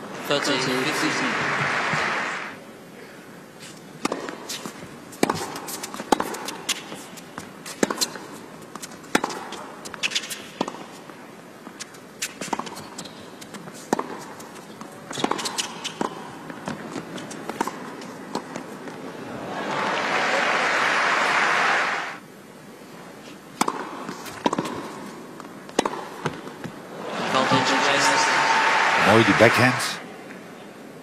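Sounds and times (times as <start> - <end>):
racket hitting tennis ball: 4.0 - 10.9, 11.8 - 19.0, 23.6 - 26.7
tennis ball bouncing: 4.0 - 11.0, 11.7 - 19.0, 23.6 - 26.8.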